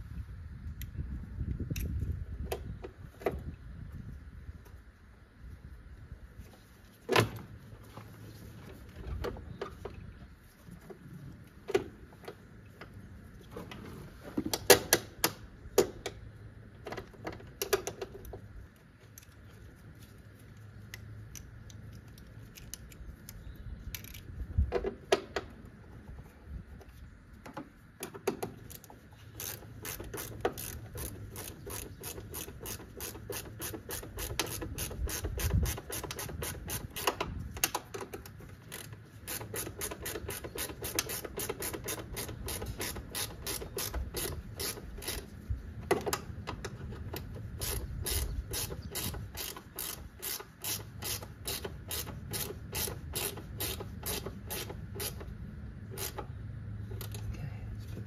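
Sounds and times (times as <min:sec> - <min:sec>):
socket ratchet clicking: 0:28.6 - 0:45.3, 0:46.0 - 0:56.3.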